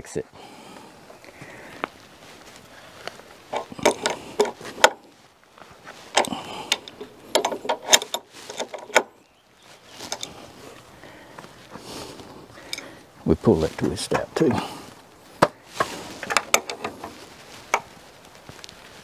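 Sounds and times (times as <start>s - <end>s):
hand tool clicks and knocks on timber: 6.1s - 9.1s, 15.4s - 17.9s.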